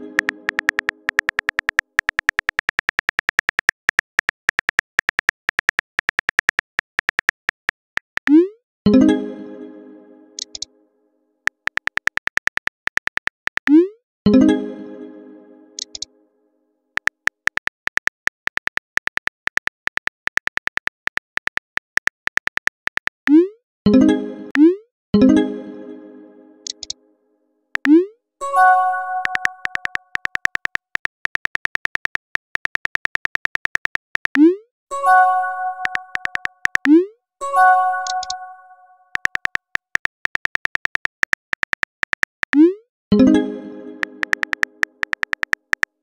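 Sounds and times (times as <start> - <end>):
synthesizer music: 0.0 - 1.5, 8.4 - 10.7, 14.3 - 16.1, 23.9 - 27.0, 27.8 - 30.1, 34.4 - 39.1, 42.6 - 45.2
phone keyboard typing clicks: 0.0 - 8.5, 10.4 - 10.7, 11.5 - 13.8, 15.8 - 16.1, 17.0 - 23.4, 26.6 - 27.0, 27.8 - 28.0, 29.2 - 34.5, 35.8 - 37.0, 38.0 - 38.4, 39.1 - 42.7, 44.0 - 46.0.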